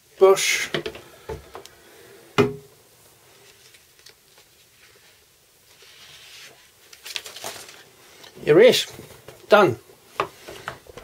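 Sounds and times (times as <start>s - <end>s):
paper rustling: 3.3s - 9.5s.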